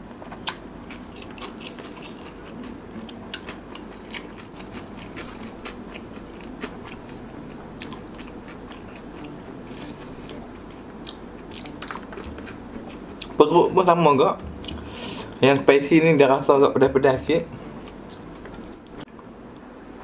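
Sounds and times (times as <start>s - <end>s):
close chewing with crisp clicks: 0.2s - 13.4s, 14.4s - 15.4s, 17.4s - 19.0s.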